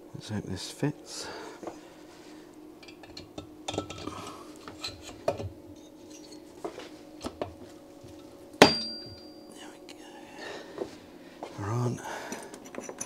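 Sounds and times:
light metallic clinks: 0:08.6 - 0:09.6, 0:12.3 - 0:13.0
sharp ringing metal clank: 0:08.6 - 0:09.6.

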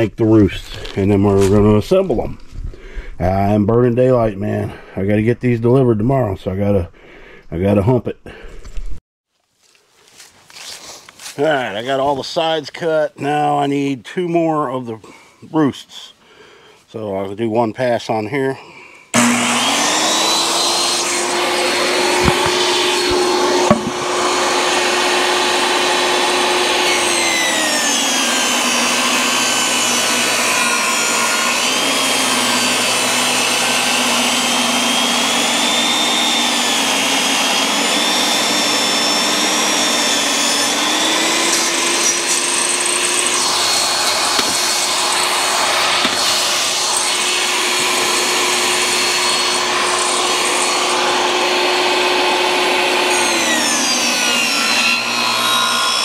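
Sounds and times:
table saw motor whine: 0:19.2 - 0:56.0.

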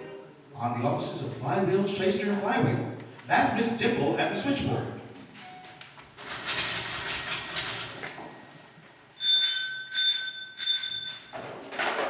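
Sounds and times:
telephone bell ringing: 0:05.6 - 0:07.6, 0:09.2 - 0:11.6.

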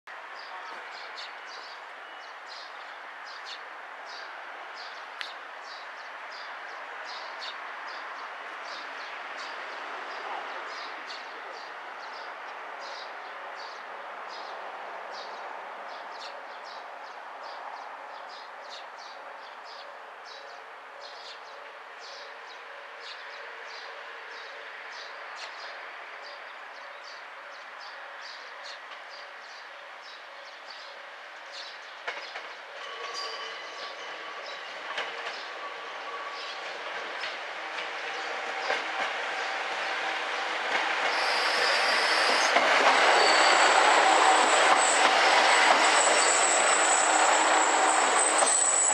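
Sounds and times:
outdoor ambience: 0:00.1 - 0:48.9
diesel railcar engine: 0:32.0 - 0:48.9.

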